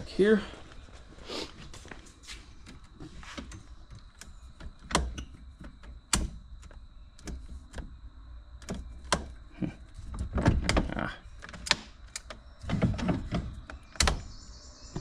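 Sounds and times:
handling knocks and clicks: 2.6 - 8.0, 10.0 - 14.3.

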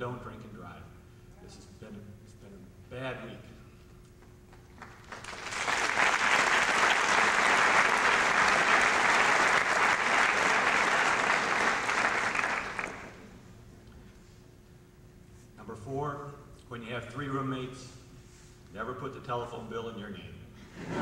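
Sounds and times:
audience clapping: 4.5 - 13.3.

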